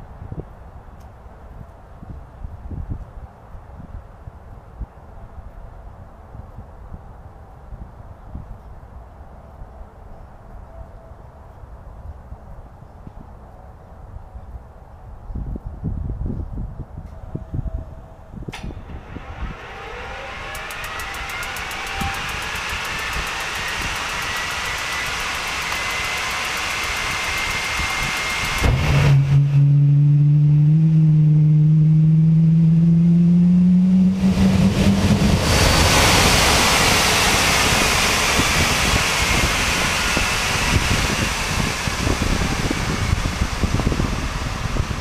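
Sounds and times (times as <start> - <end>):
jet engine whine and drone: 0.0 - 45.0
rush of air: 18.3 - 45.0.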